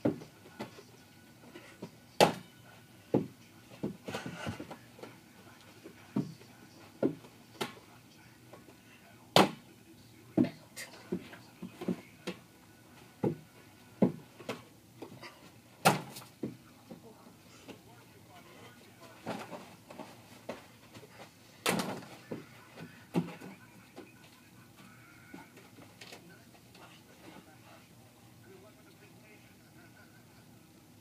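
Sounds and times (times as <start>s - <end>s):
footsteps: 3.2s - 7.8s.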